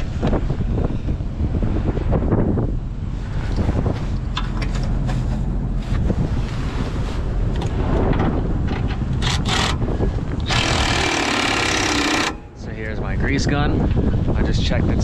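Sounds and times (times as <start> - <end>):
wind buffeting microphone: 0.0 - 15.0
cordless power tool running: 10.4 - 12.5
hand tools clicking and knocking: 10.4 - 12.5.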